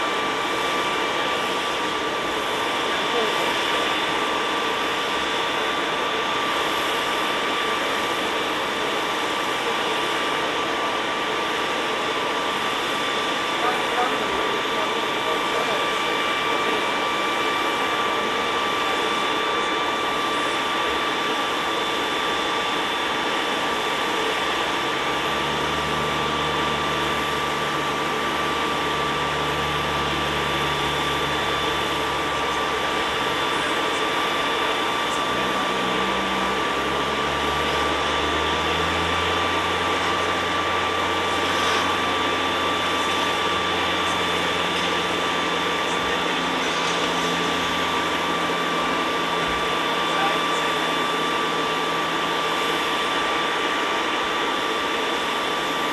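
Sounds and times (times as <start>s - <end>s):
jet engines whining: 0.0s - 55.9s
deeper drone: 22.8s - 55.9s.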